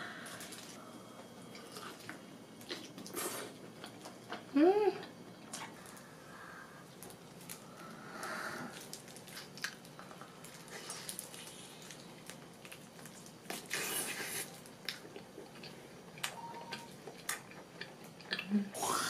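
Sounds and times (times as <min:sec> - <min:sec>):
person chewing wet smacking: 0:11.2 - 0:18.5.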